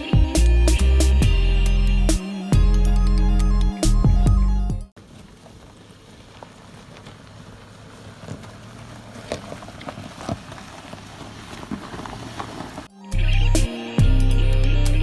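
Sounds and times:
car crawling over rocky road: 5.0 - 12.9
tyres crunching on stones: 5.0 - 12.9.

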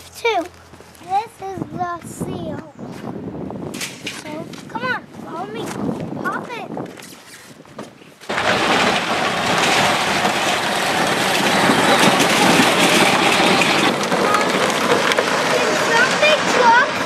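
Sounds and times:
plastic wheels rolling on gravel: 8.2 - 17.0.

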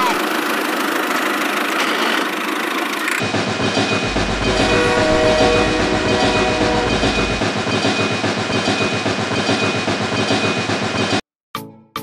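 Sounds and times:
train clattering along track: 0.2 - 11.2
steady tone: 3.9 - 7.8.

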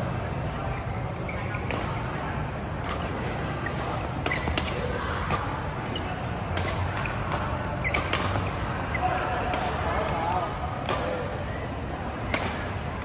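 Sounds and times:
shoe squeaks on court: 0.7 - 2.0, 3.6 - 4.9, 5.8 - 9.1
racket striking shuttlecock: 2.8 - 8.7, 9.5 - 9.9, 10.8 - 11.3, 12.3 - 12.8.

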